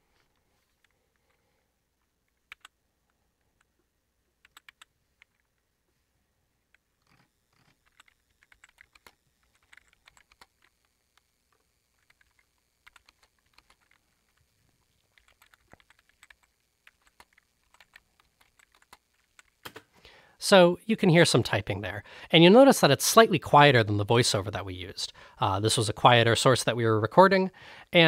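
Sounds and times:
keyboard typing clicks: 2.3s - 2.8s, 4.4s - 5.4s, 7.1s - 10.7s, 12.0s - 14.0s, 15.0s - 19.8s.

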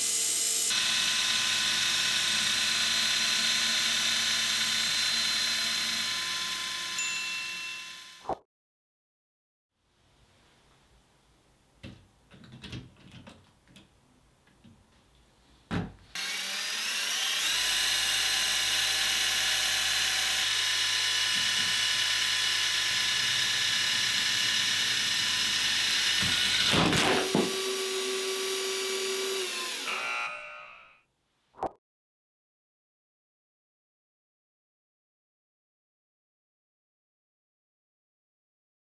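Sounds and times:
small electric motors whining: 0.0s - 8.2s, 16.2s - 31.0s.

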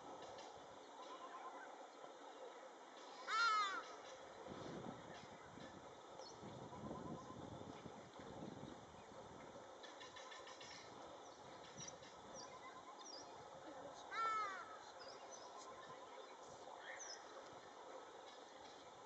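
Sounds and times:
small birds chirping: 8.6s - 19.0s.

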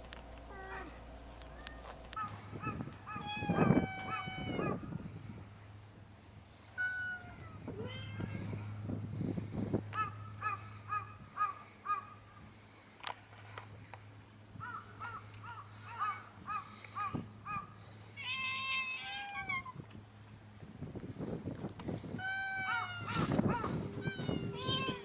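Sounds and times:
animal high cries: 2.7s - 4.8s, 18.2s - 19.7s, 22.2s - 25.0s.

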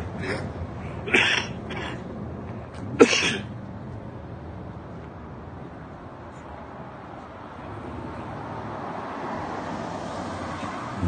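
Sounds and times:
steady rushing background noise: 0.0s - 11.0s
person coughing: 1.1s - 2.0s, 3.0s - 3.5s.

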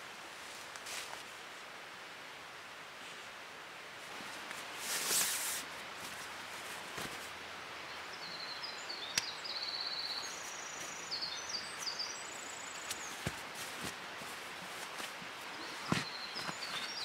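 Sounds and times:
sleeping pad rustling and clicking: 4.3s - 7.3s, 12.7s - 17.0s
songbird trilling: 8.2s - 13.2s.

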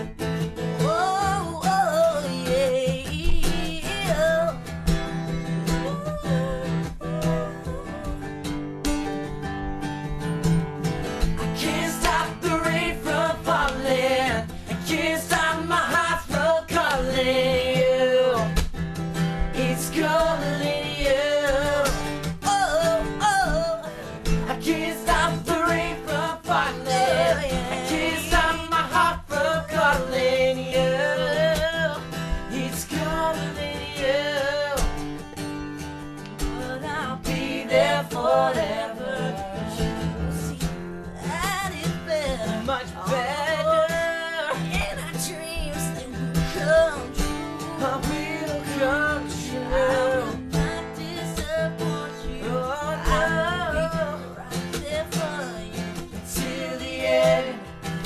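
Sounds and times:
acoustic guitar strumming: 0.0s - 58.0s
men singing together: 11.4s - 18.6s, 19.5s - 34.8s, 36.7s - 40.0s, 47.8s - 54.5s, 55.4s - 57.8s.

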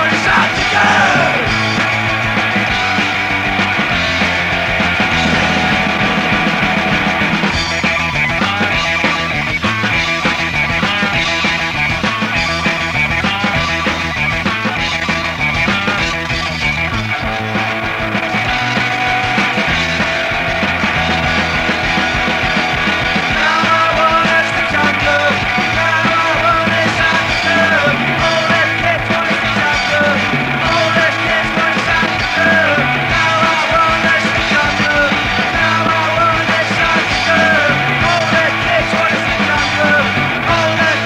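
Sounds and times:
punk rock band playing: 0.0s - 41.0s.

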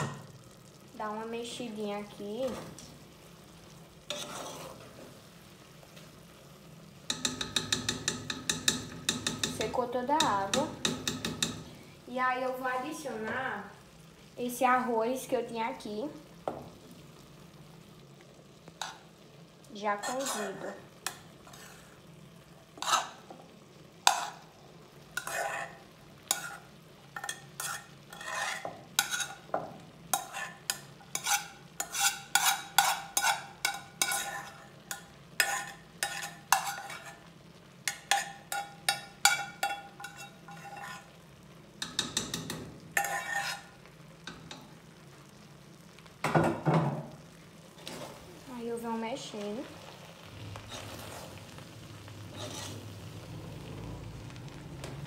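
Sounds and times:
metal spoon scraping saucepan: 4.1s - 5.0s, 20.0s - 22.0s, 22.8s - 23.2s, 25.2s - 29.5s, 30.1s - 37.3s, 37.9s - 41.2s, 41.8s - 43.7s, 50.7s - 51.3s, 52.3s - 52.9s.

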